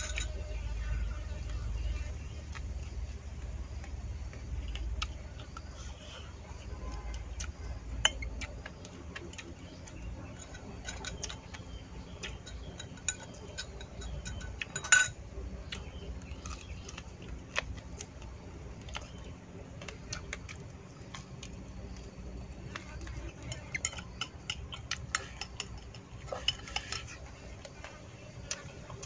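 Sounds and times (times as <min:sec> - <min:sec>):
chopsticks clicking on ceramic bowls: 0:07.2 - 0:17.0, 0:22.7 - 0:27.8.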